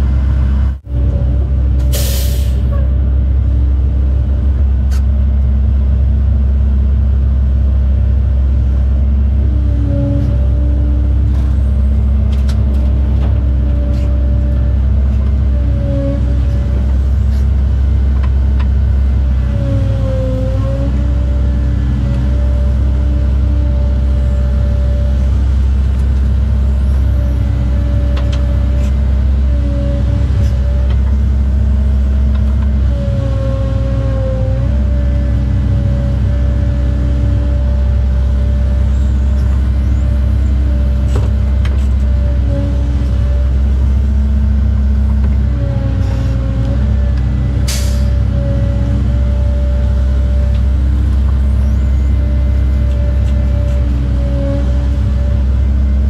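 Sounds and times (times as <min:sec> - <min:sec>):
excavator diesel engine running: 0:00.0 - 0:56.0
hydraulic whine: 0:19.2 - 0:56.0.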